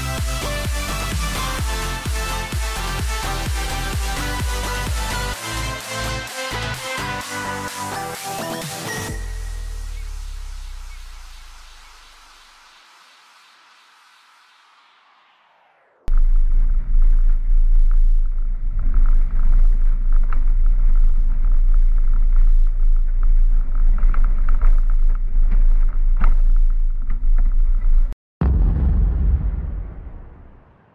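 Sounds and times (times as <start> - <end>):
low rumbling sound effect: 15.7 - 30.9
vehicle road rumble: 16.1 - 29.0.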